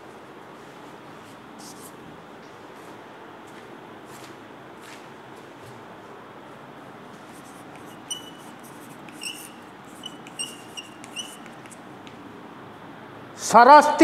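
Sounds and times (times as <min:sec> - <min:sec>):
chalk squeaking: 0:01.6 - 0:01.9, 0:07.3 - 0:12.0
chalk scratching on blackboard: 0:01.6 - 0:02.0, 0:07.3 - 0:11.9.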